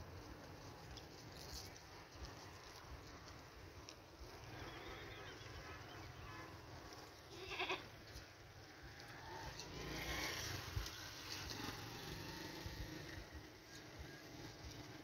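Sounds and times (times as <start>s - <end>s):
goat bleating: 7.3s - 8.0s.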